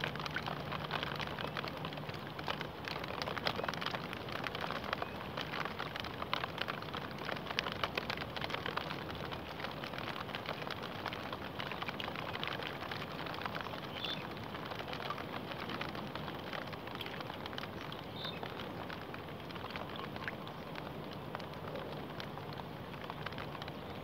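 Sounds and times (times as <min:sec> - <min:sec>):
rain falling on water: 0:00.0 - 0:24.0.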